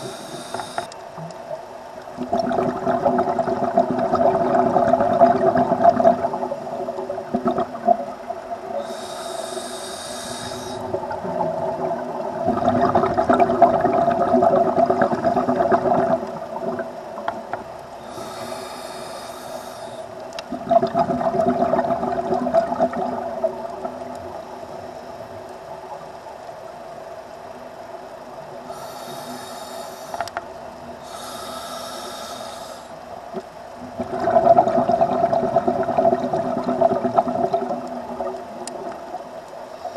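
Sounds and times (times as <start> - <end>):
regulator inhalation hiss: 0.0 - 1.0, 8.7 - 11.0, 18.0 - 20.3, 28.7 - 30.4, 31.0 - 33.1
bubbling exhalation: 2.2 - 8.3, 10.8 - 16.9, 20.5 - 23.4, 34.0 - 38.4.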